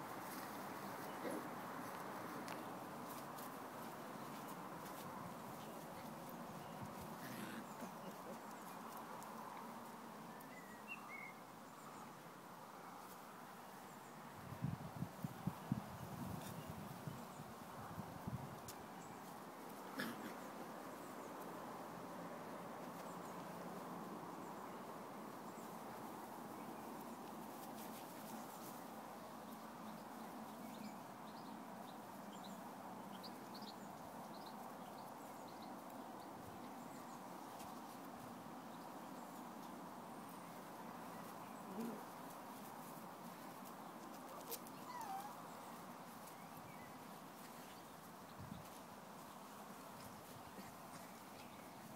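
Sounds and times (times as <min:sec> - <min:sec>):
outdoor background noise: 0:00.0 - 0:51.9
puppies yipping and squeaking: 0:44.4 - 0:45.4.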